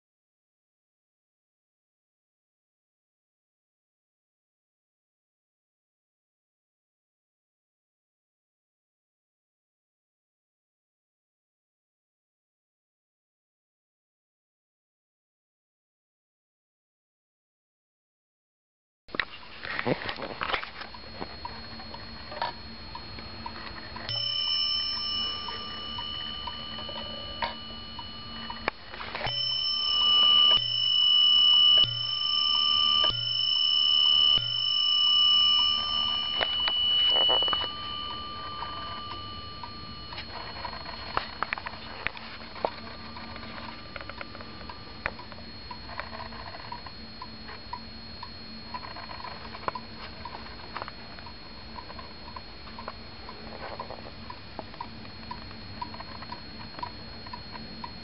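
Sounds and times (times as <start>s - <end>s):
clock bell striking: 23.8s - 45.0s.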